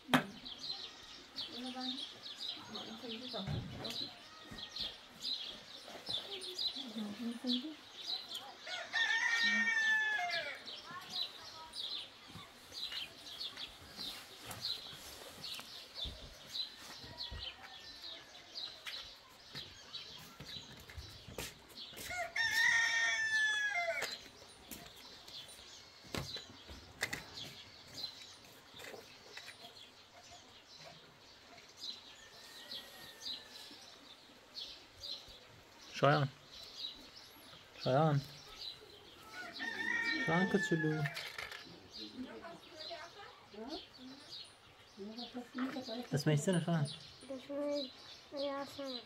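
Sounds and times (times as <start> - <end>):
small birds chirping: 0.0 - 49.0
rooster crowing: 8.6 - 10.6, 22.0 - 24.2, 32.2 - 33.8, 39.3 - 41.2.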